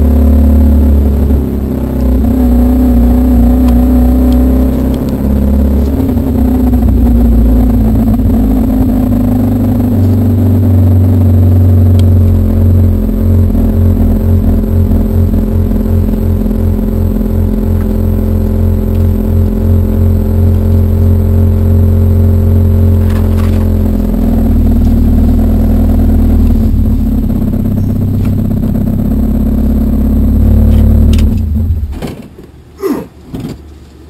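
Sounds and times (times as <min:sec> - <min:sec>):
car engine running at low revs: 0:00.0 - 0:34.0.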